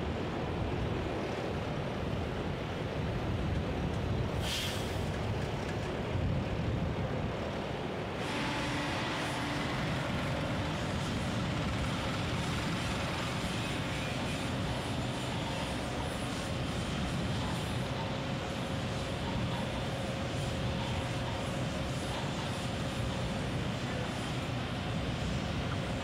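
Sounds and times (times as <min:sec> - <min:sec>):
faint constant whine: 0:05.2 - 0:26.0
heavy construction equipment running: 0:08.0 - 0:26.0.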